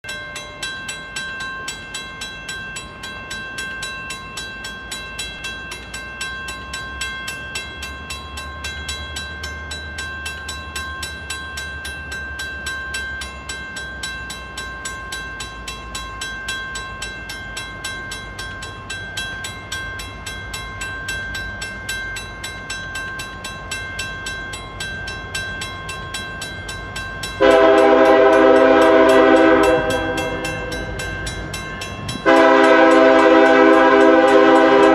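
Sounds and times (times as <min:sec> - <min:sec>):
railroad crossing bell ringing: 0:00.0 - 0:34.9
train rumble: 0:00.1 - 0:34.9
train air horn blast: 0:27.4 - 0:30.7, 0:32.2 - 0:34.9.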